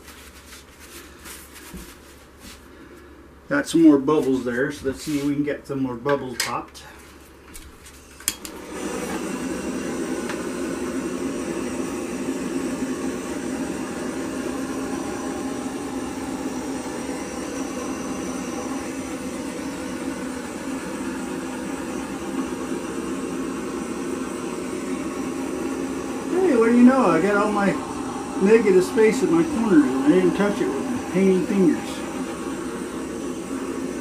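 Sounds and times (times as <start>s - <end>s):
butane torch hissing: 8.7s - 34.0s.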